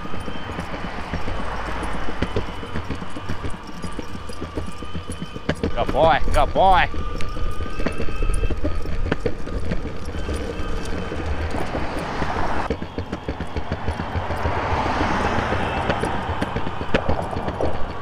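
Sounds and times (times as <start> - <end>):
dog paws pattering: 0.0 - 18.0
road traffic: 0.0 - 18.0.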